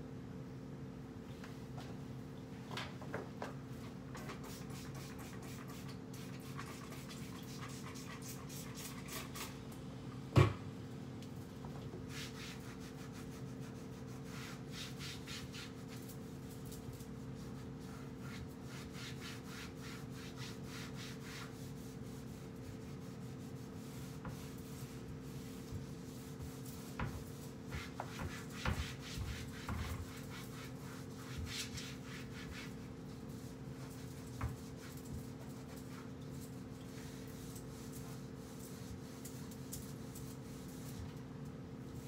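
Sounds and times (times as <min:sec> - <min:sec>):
knocks against cabinets: 0:10.4 - 0:10.6.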